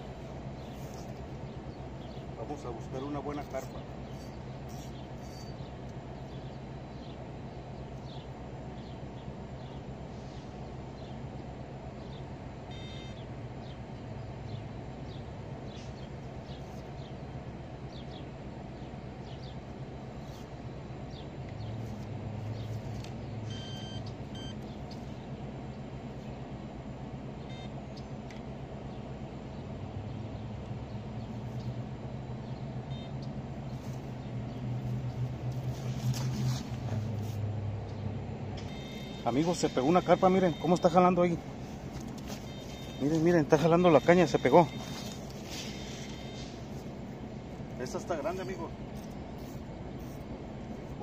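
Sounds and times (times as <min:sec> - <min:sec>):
distant traffic hum: 0:00.0 - 0:51.0
bird chirps: 0:03.3 - 0:11.2, 0:42.1 - 0:46.8
high beeping notes: 0:23.5 - 0:24.6, 0:38.7 - 0:41.4, 0:42.3 - 0:46.6.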